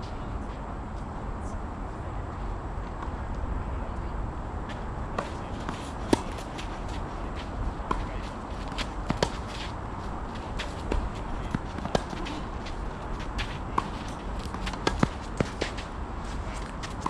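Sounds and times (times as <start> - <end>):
low background hum: 0.0 - 17.0
tennis ball bounces: 5.2 - 7.0, 7.8 - 9.7, 10.4 - 15.9.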